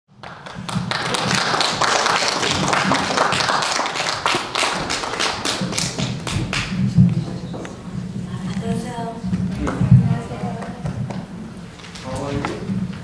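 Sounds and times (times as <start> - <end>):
audience clapping: 0.1 - 7.8, 9.6 - 11.3.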